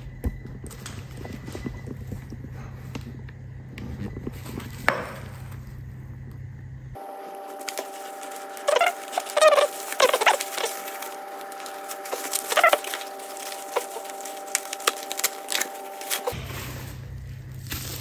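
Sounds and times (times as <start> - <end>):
bubble wrap crackling: 7.0 - 18.0
bubble wrap squeaks: 7.0 - 18.0.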